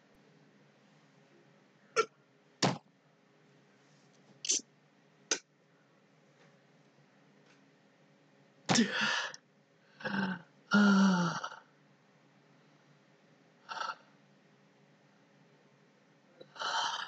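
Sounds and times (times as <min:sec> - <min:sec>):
sharp gasps: 0:08.8 - 0:09.4.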